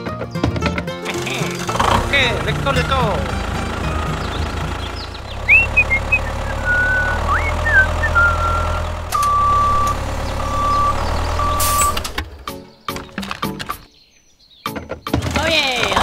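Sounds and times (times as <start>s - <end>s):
truck engine running: 1.0s - 13.9s
rising whistled chirps: 5.0s - 12.0s
high electronic beep: 8.2s - 12.0s.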